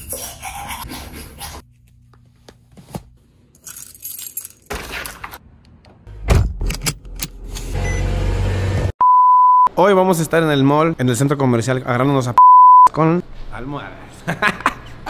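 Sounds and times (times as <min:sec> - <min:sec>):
toothbrush scrubbing: 0:00.0 - 0:02.0.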